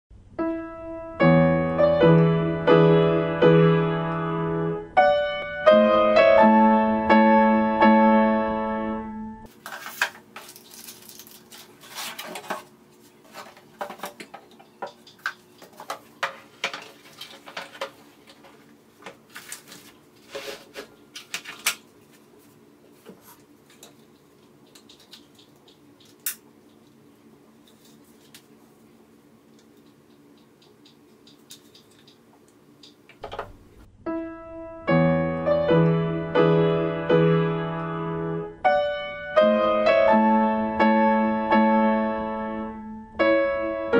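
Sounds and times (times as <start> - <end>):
piano music: 0.2 - 9.5, 33.8 - 43.9
clicks and rustles of handling: 9.5 - 28.7, 29.5 - 33.5.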